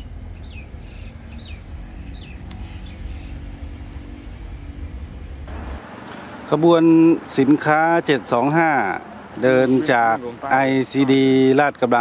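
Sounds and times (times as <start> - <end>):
bird chirping: 0.0 - 3.8
distant locomotive rumble: 0.0 - 9.5.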